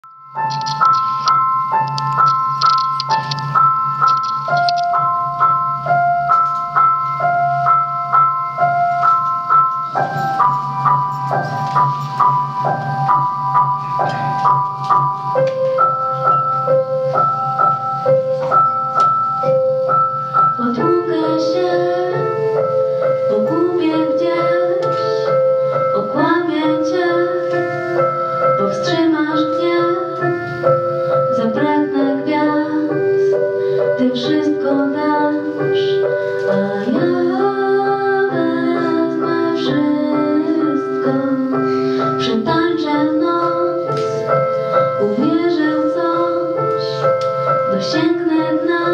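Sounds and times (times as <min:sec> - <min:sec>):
backing music: 0:00.0 - 0:48.9
woman singing: 0:20.6 - 0:27.8, 0:28.5 - 0:30.4, 0:31.3 - 0:33.4, 0:34.0 - 0:47.1, 0:47.7 - 0:48.9.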